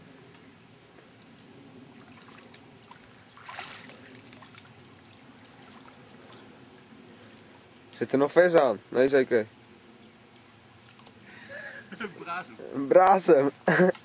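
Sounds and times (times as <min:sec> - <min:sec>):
loud splash: 0:02.0 - 0:04.9
water splashing from swimming: 0:02.0 - 0:06.5.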